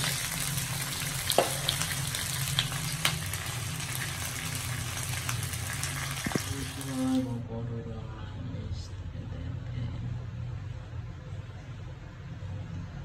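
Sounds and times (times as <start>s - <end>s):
cakes sizzling in oil: 0.0s - 7.4s.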